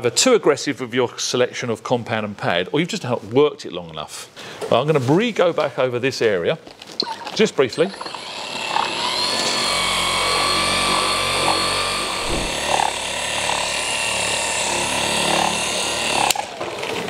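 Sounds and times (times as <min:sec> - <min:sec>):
polisher motor whine: 0:07.8 - 0:17.0.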